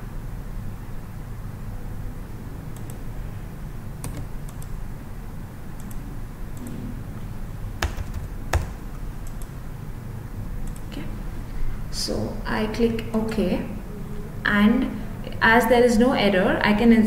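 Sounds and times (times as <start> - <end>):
steady low hum: 0.0 - 17.0
mouse and keyboard clicks: 4.0 - 4.7.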